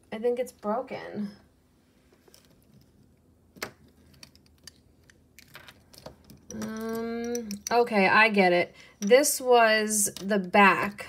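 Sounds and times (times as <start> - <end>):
woman humming: 6.5 - 7.6.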